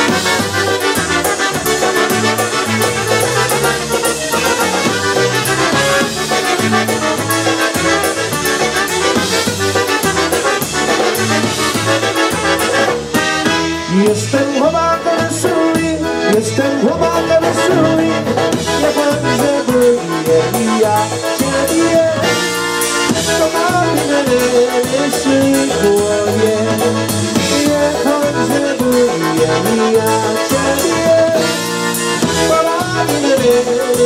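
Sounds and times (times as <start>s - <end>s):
trumpets playing: 0.0s - 14.0s, 17.1s - 20.2s
accordion: 0.0s - 34.0s
oom-pah bass: 0.0s - 34.0s
man singing into a microphone: 13.8s - 34.0s.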